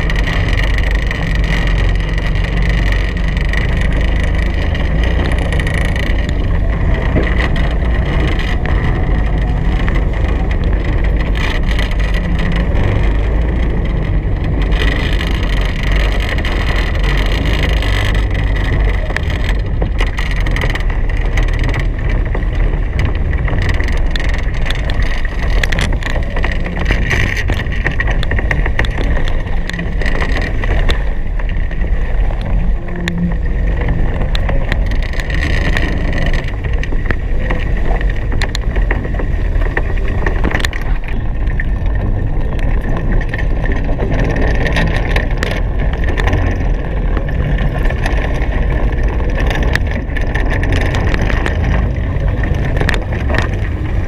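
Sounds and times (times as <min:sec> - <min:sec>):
rush of wind and water: 0:00.0 - 0:54.0.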